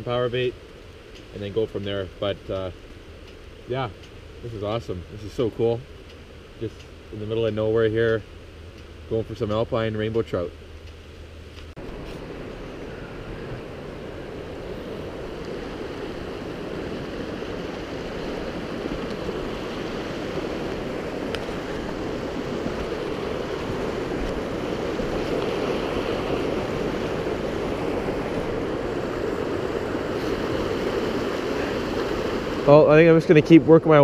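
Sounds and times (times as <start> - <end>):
creek rushing over rocks: 11.8 - 34.0.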